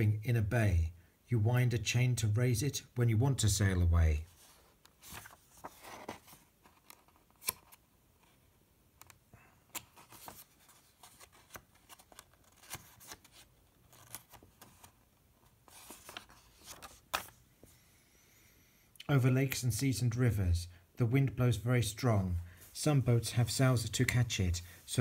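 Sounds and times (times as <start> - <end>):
book pages rustling and turning: 4.2 - 17.8.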